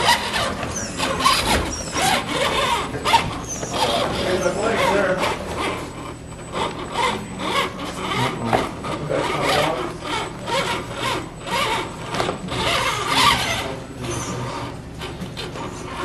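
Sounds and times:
toy car electric motor whirring: 0.0 - 8.5, 9.1 - 16.0.

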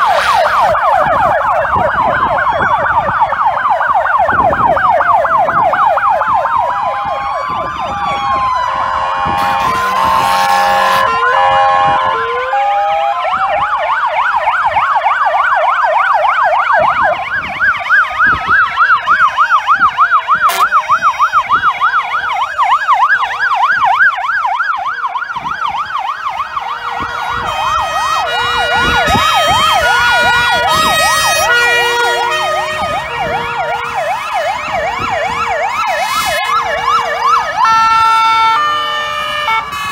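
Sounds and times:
loud horn blast: 0.0 - 0.7, 8.0 - 12.7, 20.3 - 21.8, 26.6 - 35.0, 35.9 - 39.9
fire engine sirens: 0.0 - 39.9.

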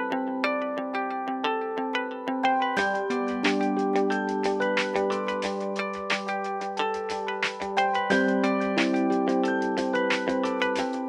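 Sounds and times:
plucked ringing melody: 0.0 - 11.0
bright percussion: 2.8 - 11.0.

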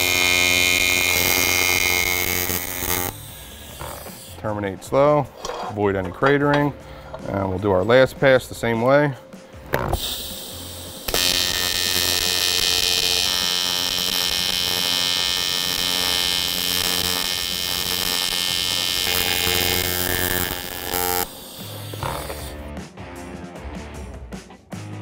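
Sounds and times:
welding arc buzzing: 0.0 - 4.4, 9.8 - 22.7.

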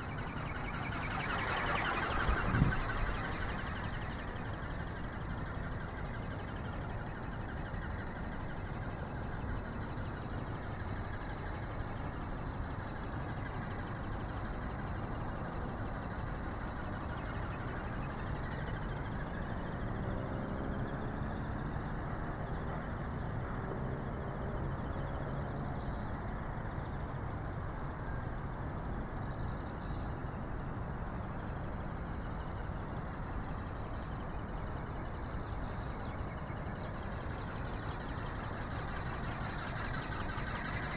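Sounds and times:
ornithopter motor whirring: 0.0 - 4.6.

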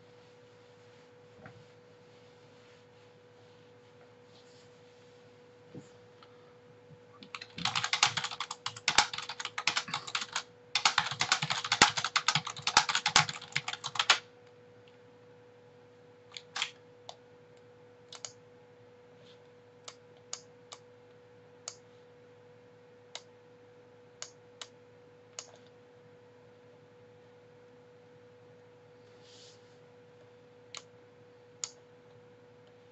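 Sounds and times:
faint steady hum: 0.0 - 32.9
typing on keyboard: 7.2 - 14.2, 16.3 - 16.8
computer mouse clicks: 18.1 - 18.4, 24.2 - 25.7, 30.7 - 30.9, 31.6 - 31.8.

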